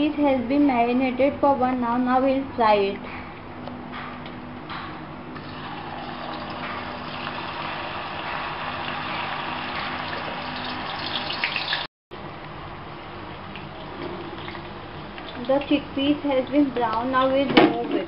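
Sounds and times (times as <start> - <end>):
food deep-frying in oil: 5.4 - 11.9, 13.4 - 17.5
sharp oil crackles: 5.4 - 11.9.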